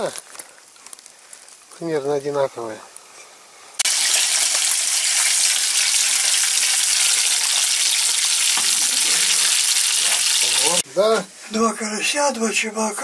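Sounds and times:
fish sizzling in hot oil: 3.8s - 10.8s.

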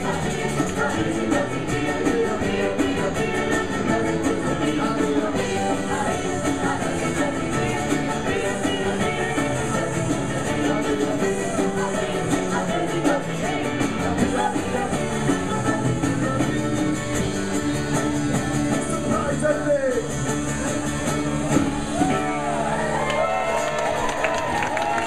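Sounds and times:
voices singing: 0.0s - 19.4s.

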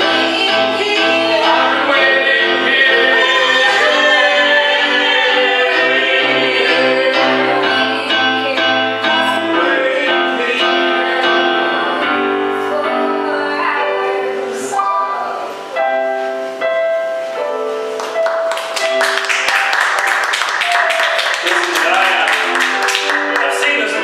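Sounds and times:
group of voices singing: 0.0s - 15.6s
electric keyboard: 0.0s - 24.0s.

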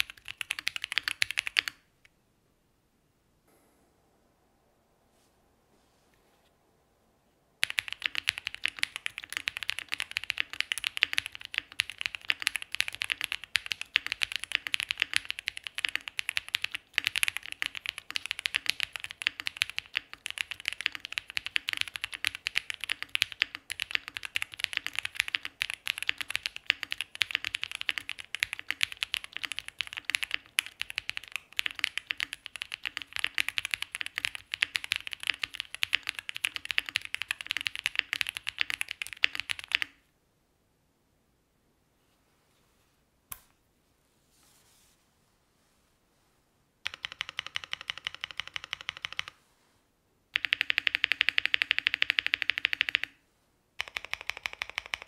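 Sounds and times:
mechanical keyboard typing: 0.0s - 1.8s, 7.6s - 40.0s, 46.8s - 49.4s, 50.3s - 53.2s, 53.8s - 55.0s.

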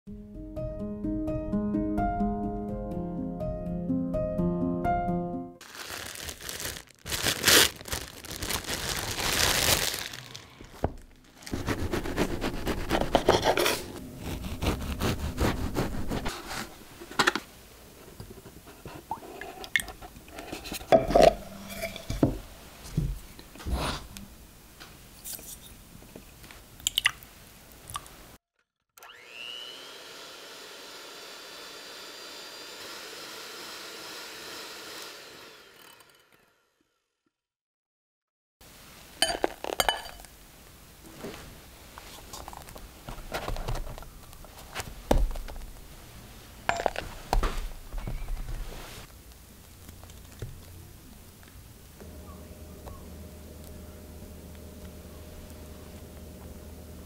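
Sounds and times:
rustling: 5.6s - 19.1s, 41.0s - 50.8s
electric hand mixer whipping: 29.0s - 36.4s.

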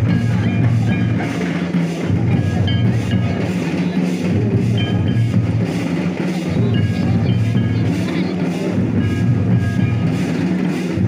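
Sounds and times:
music with drums: 0.0s - 11.0s.

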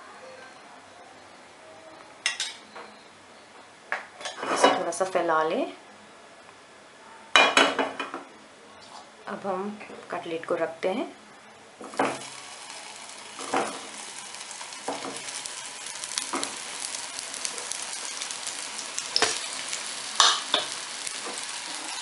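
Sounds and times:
food sizzling in hot oil: 11.8s - 22.0s
sharp bursts of sizzling: 11.8s - 22.0s.

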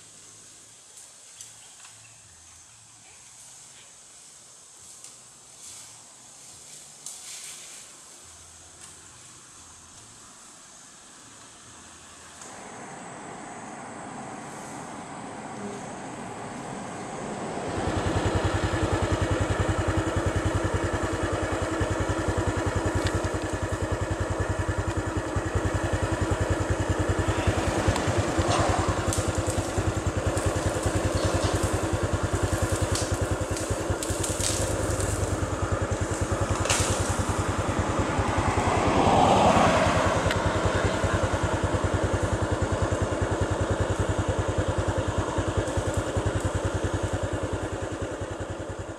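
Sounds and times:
engine idling: 11.8s - 48.9s.

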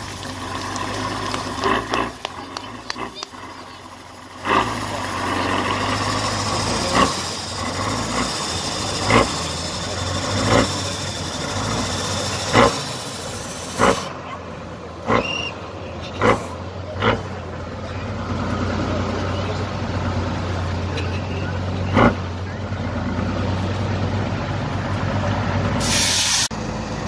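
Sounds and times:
truck diesel engine at low revs: 0.0s - 27.0s.

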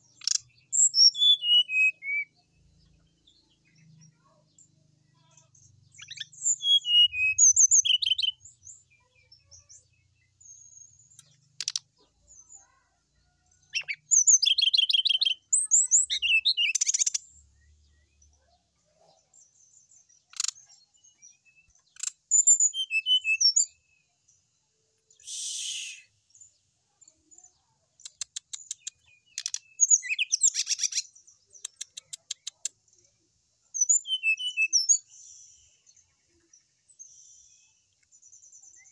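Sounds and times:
bird singing whistles and trills: 0.2s - 2.4s, 6.0s - 8.5s, 13.8s - 17.2s, 21.3s - 24.0s, 25.1s - 26.3s, 28.7s - 32.4s, 33.8s - 35.6s.

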